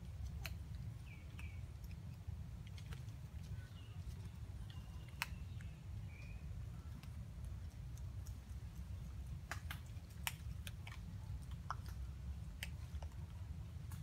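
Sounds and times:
low steady rumble: 0.0 - 14.0
small grooming clicks: 0.0 - 14.0.

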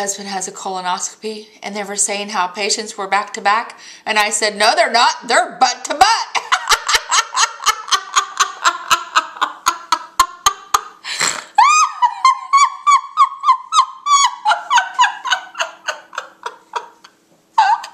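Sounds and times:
woman laughing: 6.3 - 17.9.

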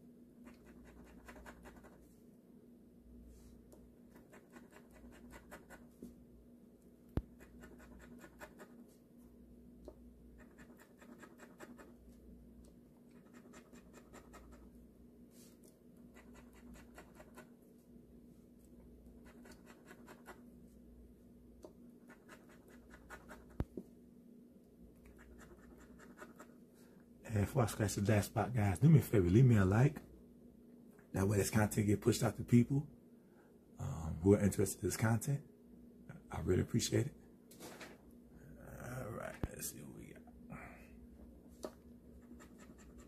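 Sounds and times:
lottery ticket being scratched: 0.5 - 2.0, 7.3 - 8.8, 10.3 - 12.0, 19.2 - 20.4.

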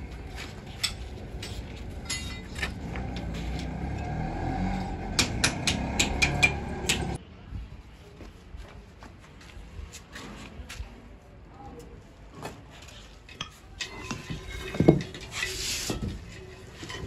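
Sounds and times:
sharp metallic clinks and knocks: 0.6 - 7.2.

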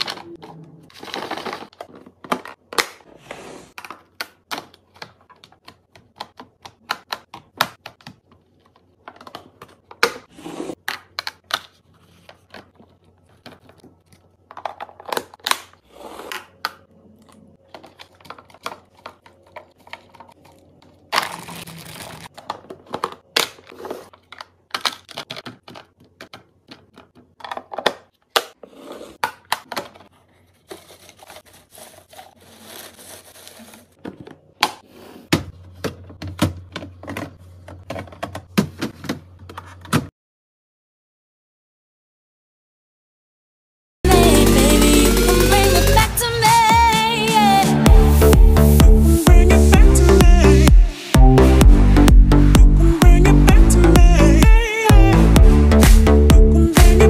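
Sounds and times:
broccoli rustling: 17.9 - 22.4, 30.1 - 34.1
plastic containers clicking: 22.2 - 28.5.

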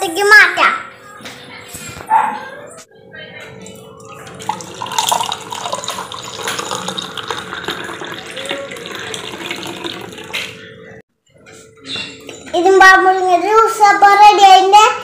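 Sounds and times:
juice pouring into a glass: 4.2 - 10.5.

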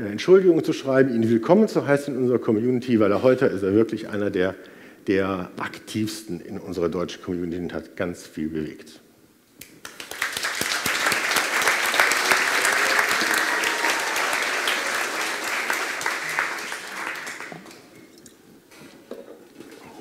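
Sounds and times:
audience applauding: 9.8 - 18.2.

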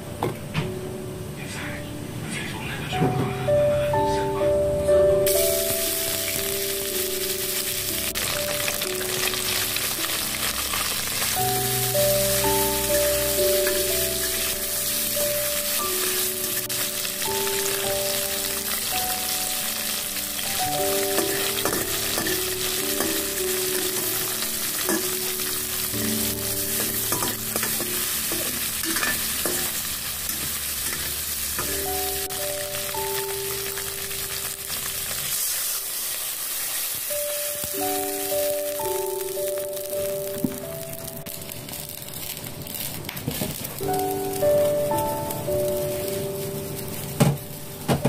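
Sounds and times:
soft background music: 0.0 - 48.0
food sizzling in a wok: 5.2 - 48.0
metal spatula scraping pan: 26.8 - 31.3.

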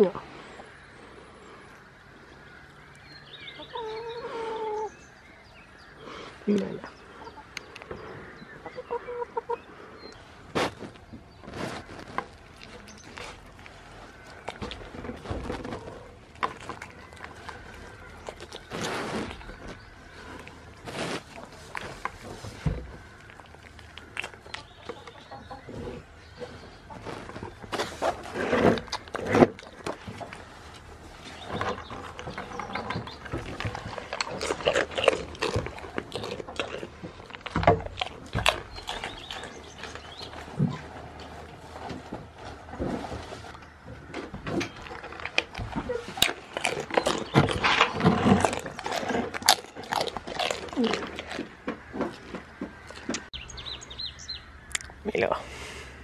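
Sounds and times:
goat nibbling clicks and rustles: 10.4 - 43.8, 44.5 - 55.0.

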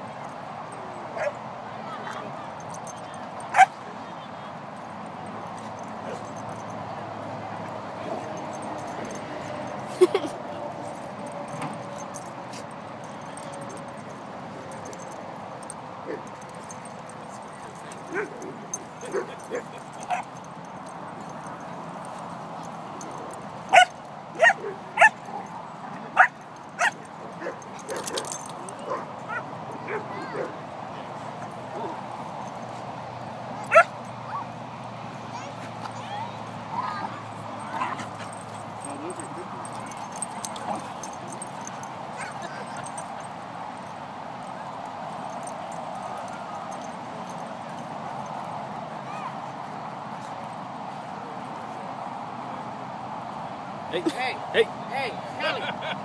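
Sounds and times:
dog barking: 3.5 - 3.7, 23.7 - 25.5, 26.1 - 30.6, 33.6 - 34.5, 42.2 - 43.0.

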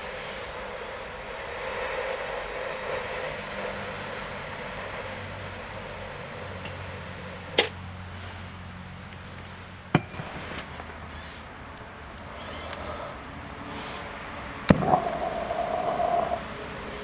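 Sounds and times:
gas can filling hiss: 0.0 - 7.8, 14.7 - 17.0.

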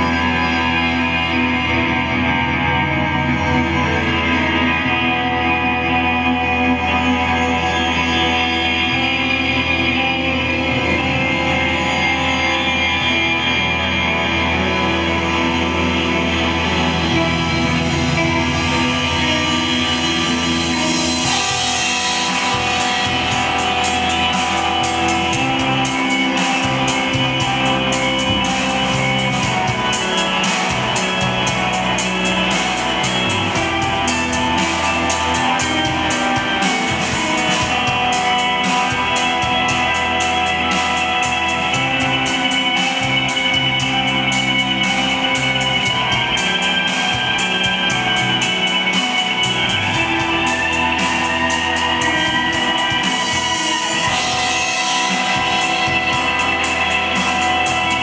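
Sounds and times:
guitar music: 0.0 - 58.0.

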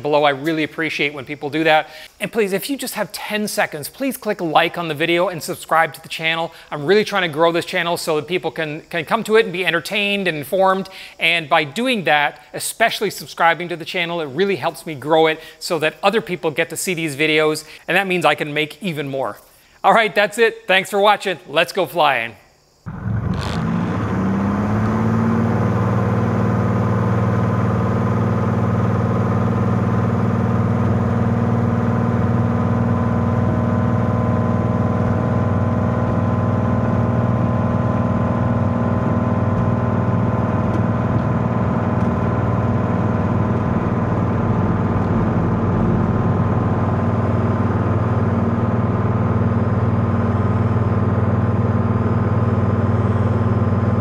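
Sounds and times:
aircraft engine and propeller: 22.9 - 34.0, 35.4 - 54.0.

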